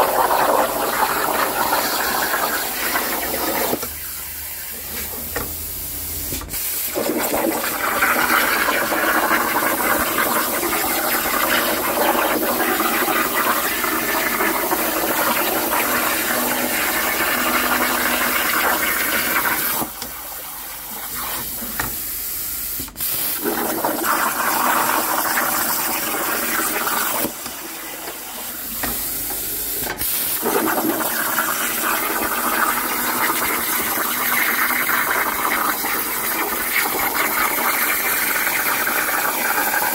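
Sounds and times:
plasma torch hissing: 22.8s - 24.1s.

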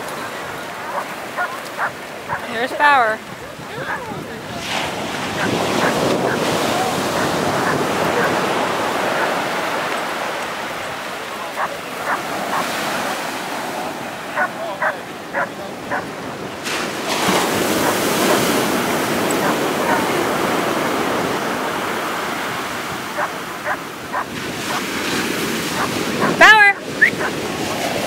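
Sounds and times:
ocean surf breaking: 0.0s - 28.0s
dog barking: 0.1s - 3.0s, 3.7s - 9.9s, 11.4s - 13.4s, 14.3s - 16.1s, 17.3s - 20.8s, 23.0s - 24.9s, 25.6s - 27.4s.

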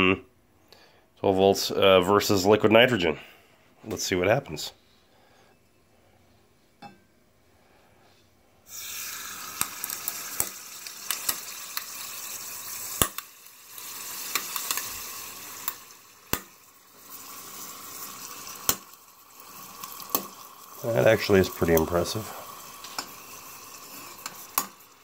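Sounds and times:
liquid nitrogen boiling hiss: 8.7s - 25.0s
sharp clicks and pops: 13.0s - 13.3s, 18.6s - 18.9s.

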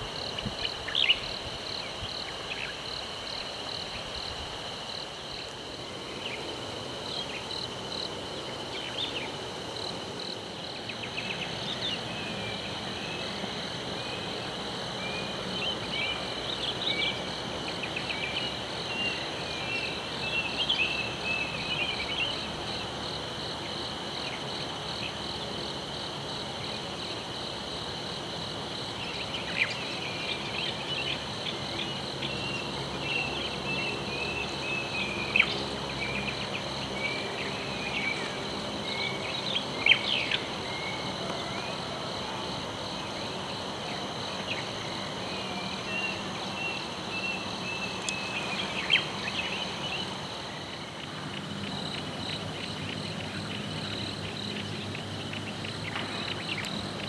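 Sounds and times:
birds chirping and twittering: 0.0s - 4.2s, 29.0s - 41.9s, 44.4s - 57.0s
insects trilling: 0.0s - 57.0s.

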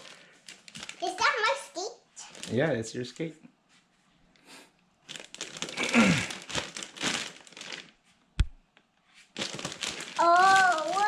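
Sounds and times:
packaging crinkling and rustling: 0.0s - 1.6s, 2.2s - 2.7s, 5.0s - 8.0s, 9.2s - 11.0s
young child's drawn-out voice: 1.0s - 2.4s, 10.2s - 11.0s
sharp knock: 8.4s - 8.6s.

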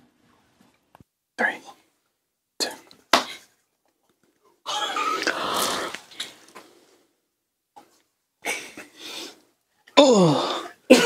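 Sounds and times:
man coughing: 10.2s - 11.0s.

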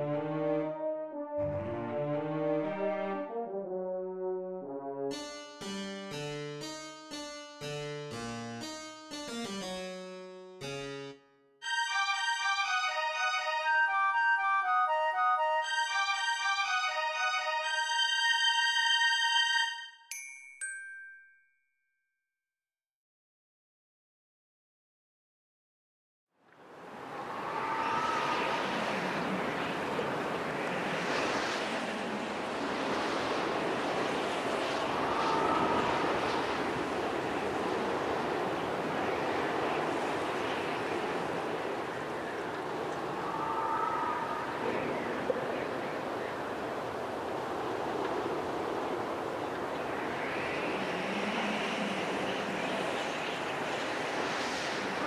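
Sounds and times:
steady rushing noise: 26.6s - 55.0s.

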